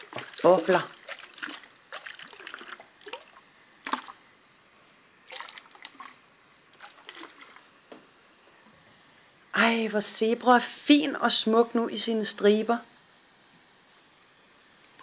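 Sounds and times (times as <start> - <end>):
bath water splashing: 0.0 - 4.2, 5.2 - 7.7
water dripping: 0.0 - 4.2.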